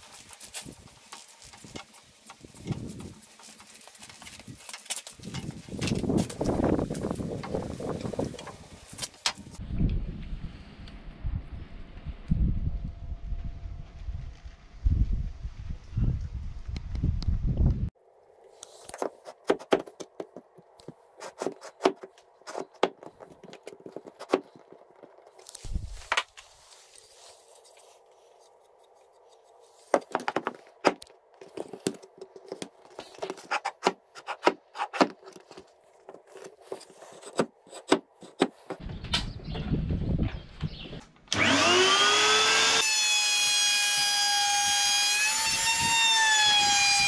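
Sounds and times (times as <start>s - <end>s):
handling clicks and scrapes: 0.0s - 9.6s, 18.5s - 39.4s
wind on microphone: 5.2s - 17.9s, 25.6s - 26.0s, 38.8s - 41.0s, 45.4s - 46.1s.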